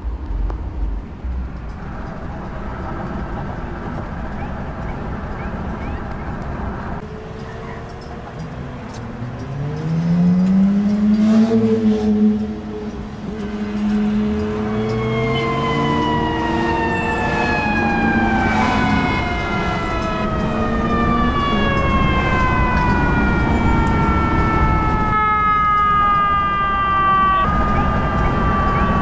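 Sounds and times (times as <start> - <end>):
low traffic rumble: 0.0 - 29.0
mechanical siren wail: 7.0 - 29.0.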